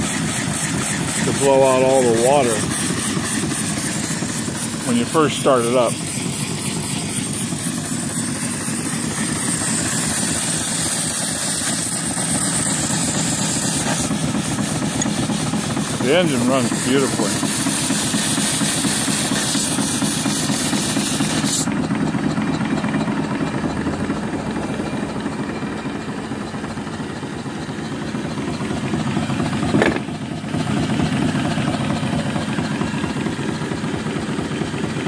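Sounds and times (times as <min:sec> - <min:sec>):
steam hissing: 0:00.0 - 0:21.8
steam engine running: 0:00.0 - 0:35.0
short thump: 0:29.7 - 0:30.2.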